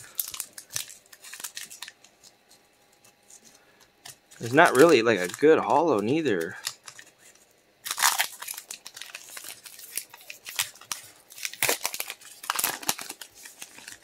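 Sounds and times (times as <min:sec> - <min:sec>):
foil pack crinkling: 0:00.0 - 0:14.0.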